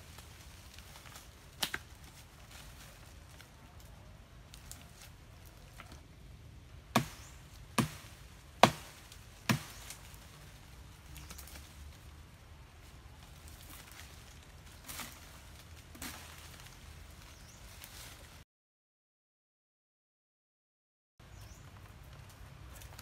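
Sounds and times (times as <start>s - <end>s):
blade chopping a branch: 1.1s - 2.0s, 6.9s - 10.2s.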